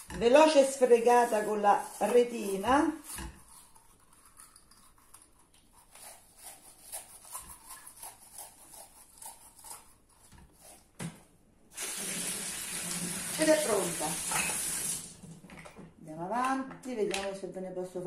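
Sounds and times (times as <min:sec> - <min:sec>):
scouring pad scratching shell: 0:00.0 - 0:10.8.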